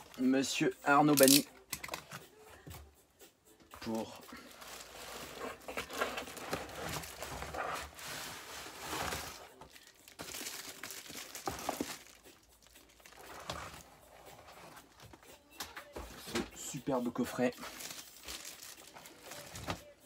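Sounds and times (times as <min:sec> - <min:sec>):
shrink-wrap crinkling: 0:04.4 - 0:13.9, 0:17.4 - 0:19.9.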